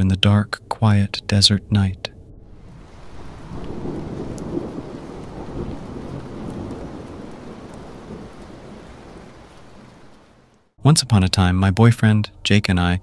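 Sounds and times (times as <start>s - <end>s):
steady rain: 0.0s - 12.6s
thunder rolling: 1.6s - 10.6s.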